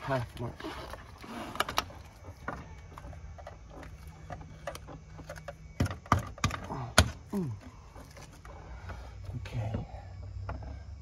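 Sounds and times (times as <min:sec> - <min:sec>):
plastic jug clicking and knocking: 0:01.6 - 0:08.5.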